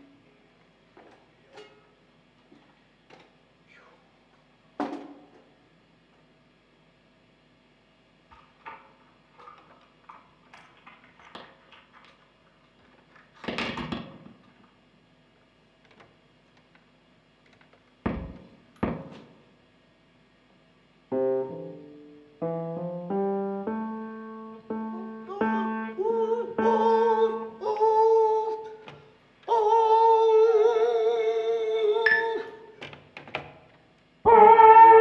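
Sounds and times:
electronic keyboard melody: 0:21.1 - 0:27.6.

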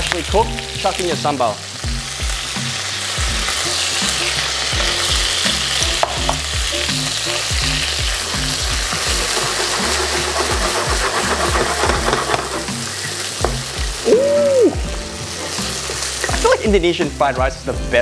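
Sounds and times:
chicken sizzling in hot oil: 0:00.0 - 0:18.0
wooden spatula knocking pan: 0:09.0 - 0:12.7, 0:13.4 - 0:13.9.

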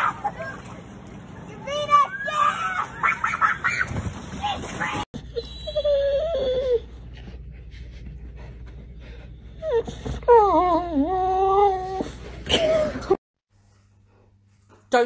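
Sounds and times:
dog whining: 0:05.2 - 0:07.3, 0:09.5 - 0:13.2.

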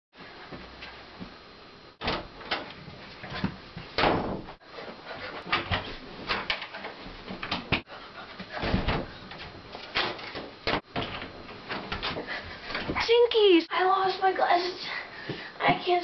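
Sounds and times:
wooden doors banging shut: 0:02.0 - 0:02.8, 0:03.4 - 0:04.6, 0:08.6 - 0:12.2.

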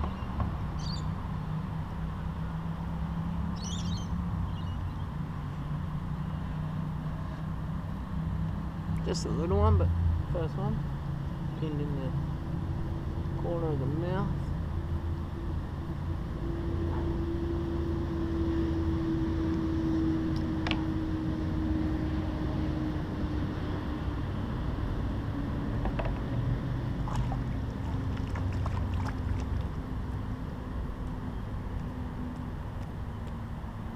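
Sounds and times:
distant engine drone: 0:00.0 - 0:33.9.

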